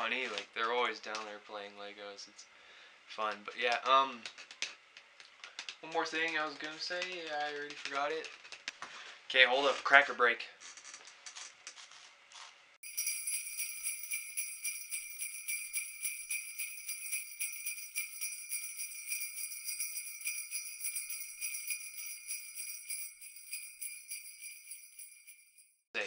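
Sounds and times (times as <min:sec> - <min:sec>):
sleigh bells jingling: 0:12.8 - 0:25.8.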